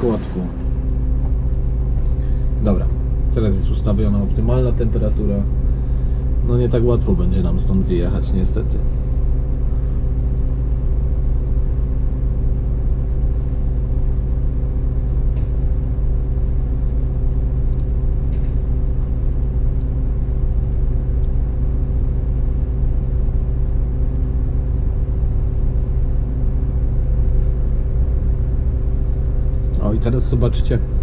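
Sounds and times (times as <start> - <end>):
bus engine idling: 0.0 - 31.0.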